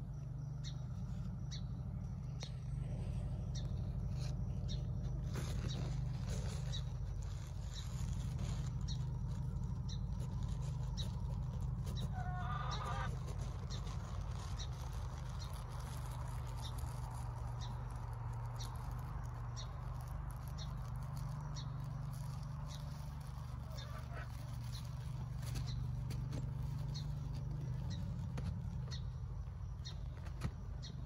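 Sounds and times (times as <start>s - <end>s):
steady low hum: 0.0s - 31.0s
animal call: 11.9s - 14.9s, 23.2s - 25.7s.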